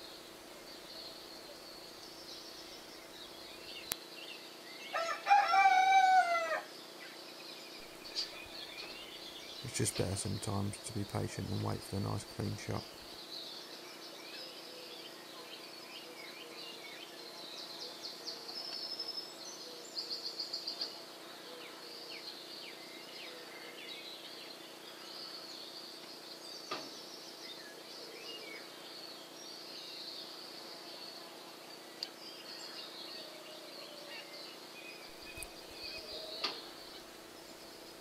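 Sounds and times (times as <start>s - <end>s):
small birds chirping: 0.0s - 5.2s, 6.4s - 38.0s
faint steady hum: 0.0s - 38.0s.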